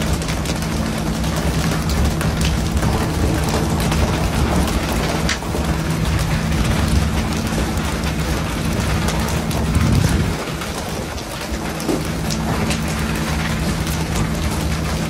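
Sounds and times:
boat engine hum: 0.0s - 15.0s.

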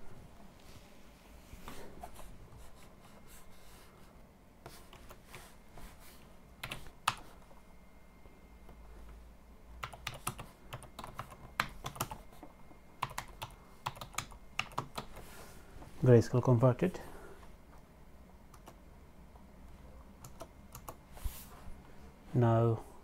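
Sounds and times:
computer keyboard typing: 6.6s - 7.3s, 9.8s - 12.2s, 13.0s - 15.2s, 18.5s - 18.8s, 20.2s - 21.0s.

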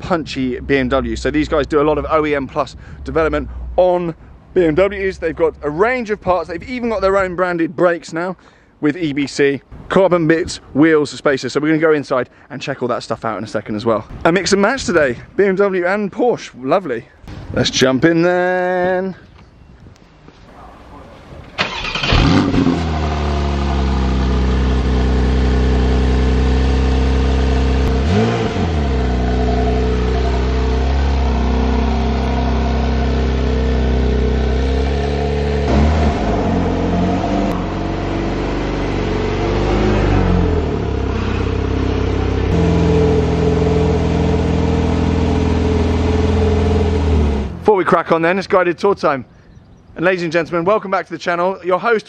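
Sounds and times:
car engine idling and revving: 21.7s - 47.6s.

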